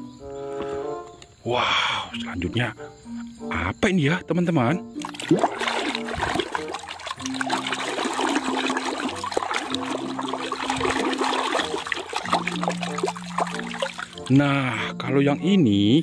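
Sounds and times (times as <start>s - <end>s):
hand splashing water in basin: 5.0s - 14.4s.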